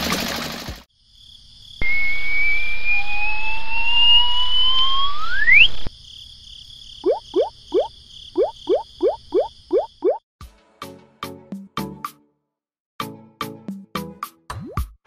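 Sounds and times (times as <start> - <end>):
rising cartoon whistle tones: 1.8 - 5.9.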